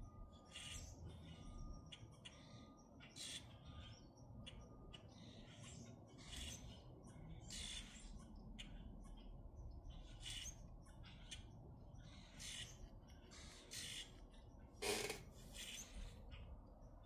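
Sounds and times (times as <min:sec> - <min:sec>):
grackles calling: 0:10.0 - 0:16.5.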